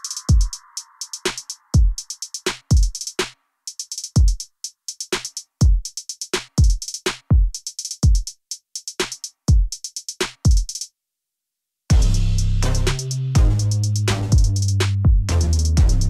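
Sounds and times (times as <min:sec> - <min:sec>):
hi-hat ticks: 0:00.0 - 0:10.9, 0:11.9 - 0:16.0
deep kick drums: 0:11.9 - 0:12.8, 0:13.4 - 0:16.0.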